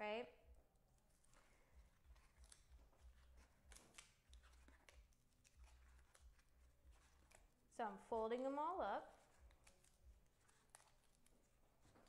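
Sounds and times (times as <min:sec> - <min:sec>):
cardboard creasing and crinkling: 0:01.1 - 0:07.6, 0:09.1 - 0:12.0.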